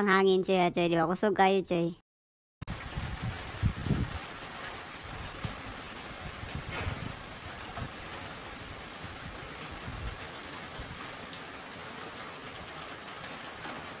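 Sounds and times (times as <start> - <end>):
wind rumble on microphone: 2.7 - 11.1
gusting wind: 2.7 - 11.3
rain falling: 2.7 - 14.0.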